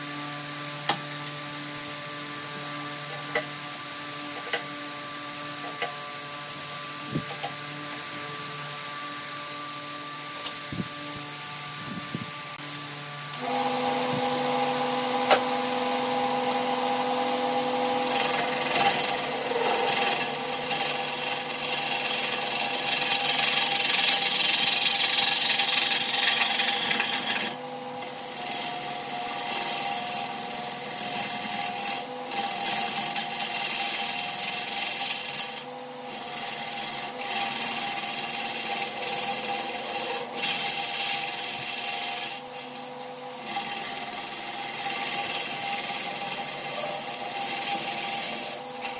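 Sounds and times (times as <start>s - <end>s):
wood lathe humming: 0.0s - 48.9s
turning tool scraping wood: 13.4s - 48.9s.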